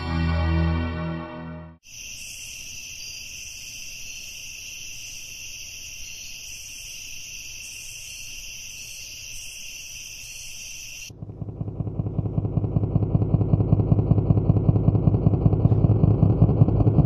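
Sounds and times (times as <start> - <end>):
music: 0.0 - 1.8
crickets trilling: 1.8 - 13.2.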